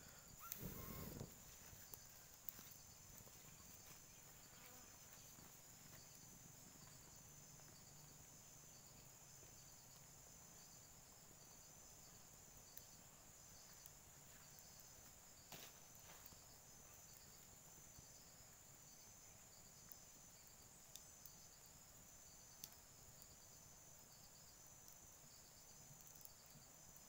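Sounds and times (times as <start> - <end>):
insect trilling: 0.0 - 5.3
faint clicks: 0.4 - 2.8.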